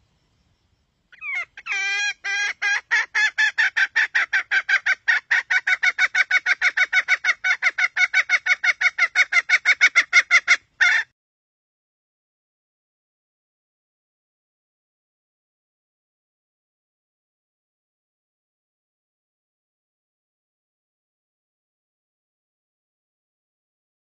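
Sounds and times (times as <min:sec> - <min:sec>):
hen clucking call: 0:01.2 - 0:11.1.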